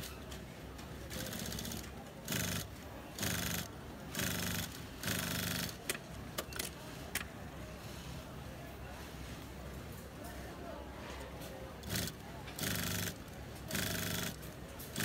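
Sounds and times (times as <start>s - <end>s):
sewing machine stitching: 1.1s - 5.8s, 11.8s - 15.0s.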